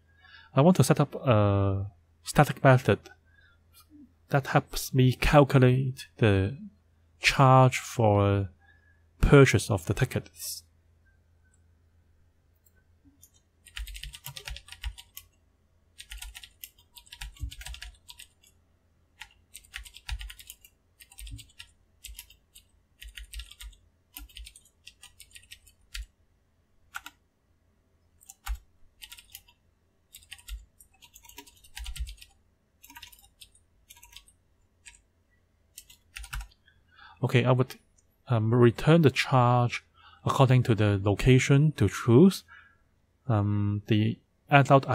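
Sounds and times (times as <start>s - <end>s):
typing on a computer keyboard: 13.2s - 15.4s, 16.0s - 18.6s, 19.2s - 26.1s, 26.9s - 27.2s, 28.2s - 35.0s, 35.7s - 36.6s.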